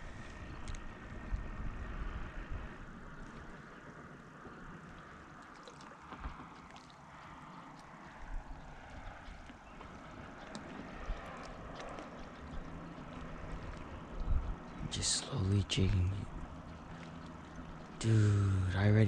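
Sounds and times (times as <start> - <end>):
rippling water: 0.0 - 19.0
faint light ticks: 0.2 - 1.5.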